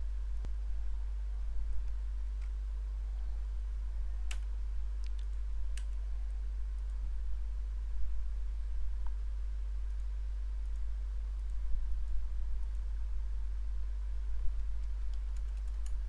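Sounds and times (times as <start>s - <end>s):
steady low hum: 0.0s - 16.0s
computer mouse clicks: 14.8s - 16.0s.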